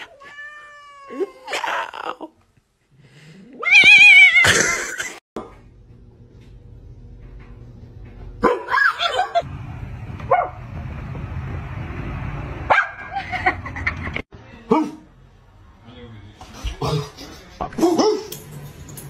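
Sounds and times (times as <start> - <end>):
dog barking: 8.4 - 8.9, 12.7 - 13.1.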